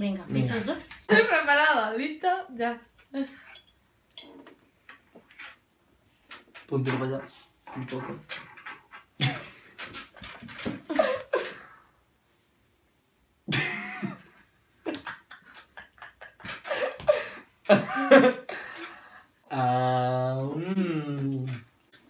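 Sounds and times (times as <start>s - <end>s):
person laughing: 10.8s - 11.7s, 13.5s - 18.8s.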